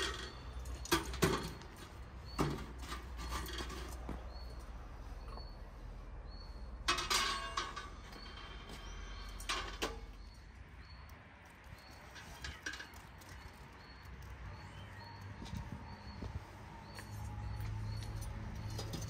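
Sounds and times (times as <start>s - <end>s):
metal tray clattering on grill: 6.9s - 8.0s.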